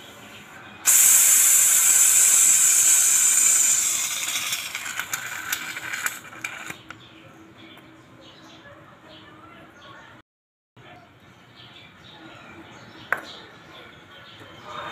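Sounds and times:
aerosol can hissing: 0.9s - 6.2s.

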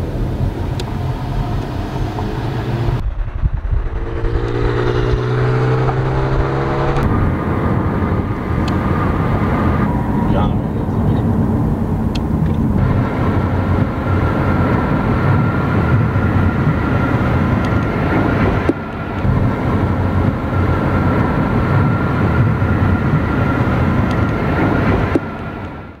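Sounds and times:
car road and wind noise: 0.0s - 26.0s.

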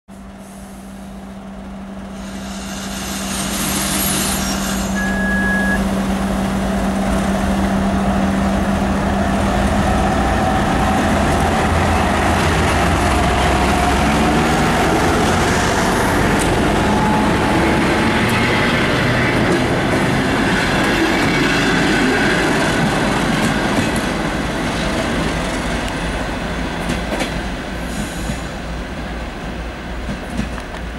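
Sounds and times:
diesel locomotive engine hum: 0.1s - 30.9s
train carriages rumbling on rails: 1.5s - 30.9s
brief high squeal: 2.2s - 5.9s.

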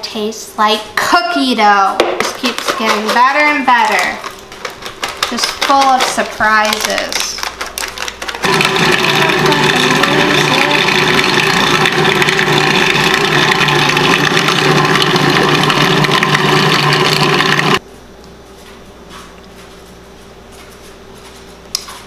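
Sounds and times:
food processor motor running: 7.8s - 17.8s.

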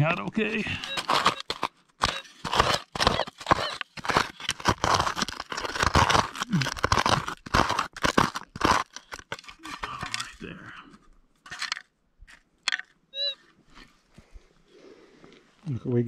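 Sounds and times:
plastic scoop digging in rocky soil: 0.4s - 10.7s, 11.4s - 11.8s.

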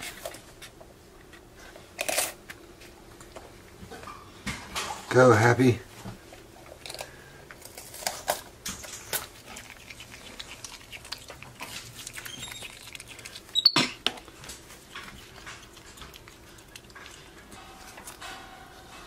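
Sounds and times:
crackling burst of chewing: 6.6s - 18.4s
monkey chewing wet crunches: 6.7s - 18.4s.

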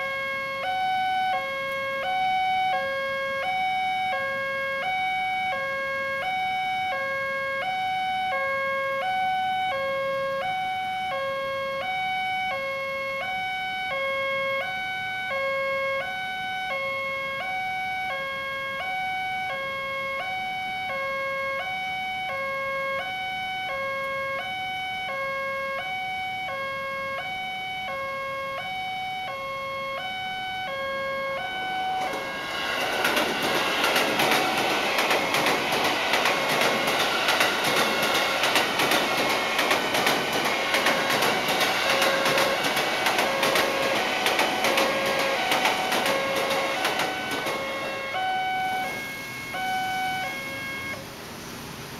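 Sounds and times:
two-tone level crossing alarm: 0.0s - 51.1s
electric train passing: 0.0s - 51.9s
rapid wheel clicking: 32.7s - 47.6s.

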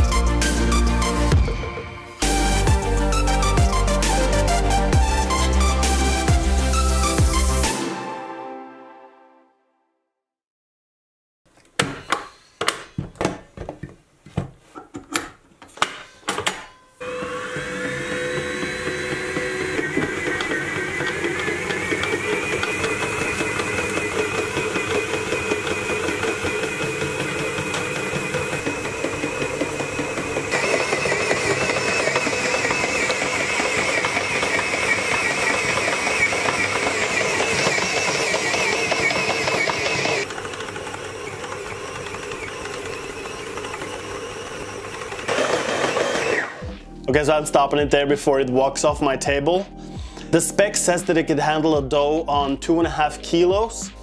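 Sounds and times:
background music: 0.0s - 9.9s, 17.5s - 40.0s, 42.8s - 54.0s
stand mixer motor whining: 17.0s - 46.7s.

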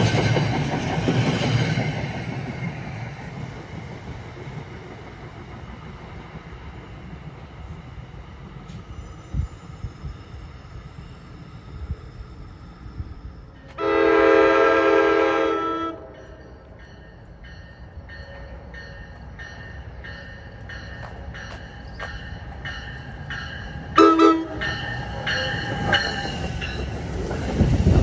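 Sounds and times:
train rumbling along rails: 0.0s - 28.0s
train horn blast: 13.7s - 16.2s, 24.0s - 24.8s.

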